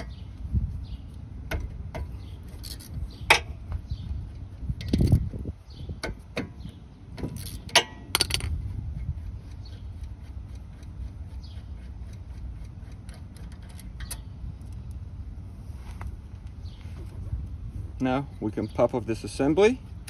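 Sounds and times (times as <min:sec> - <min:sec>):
ratchet clicking on bolts: 0:01.5 - 0:03.6, 0:06.0 - 0:08.5, 0:09.5 - 0:14.9.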